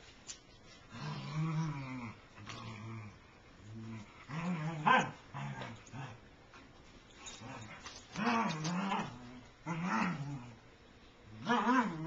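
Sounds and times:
dogs growling and whining: 0.9 - 6.2, 7.2 - 10.7, 11.3 - 12.0.

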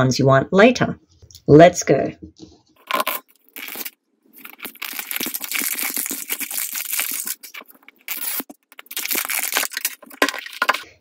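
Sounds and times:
plastic wrap crinkling: 2.8 - 10.9.

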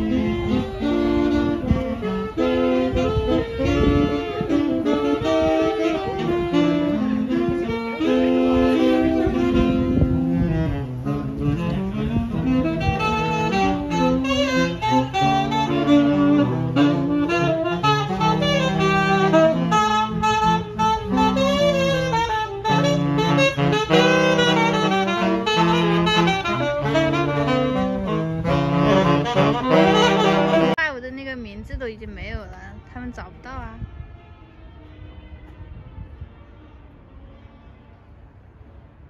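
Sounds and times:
saxophones playing in harmony: 0.0 - 30.9.

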